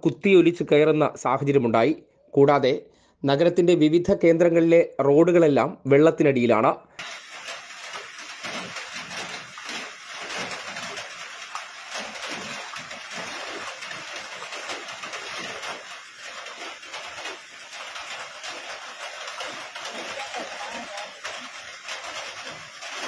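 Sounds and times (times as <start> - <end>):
heavy rain on water: 7.0 - 23.0.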